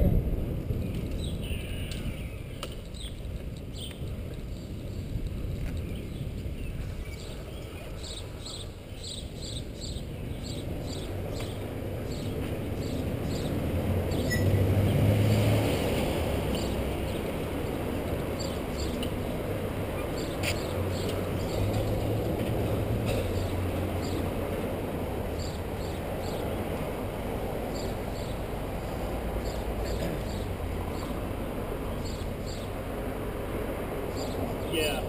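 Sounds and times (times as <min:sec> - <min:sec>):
wind noise on microphone: 0:00.0 - 0:29.8
hum of motor vehicles: 0:00.0 - 0:35.0
engine close by: 0:03.7 - 0:35.0
vehicle idling: 0:16.4 - 0:35.0.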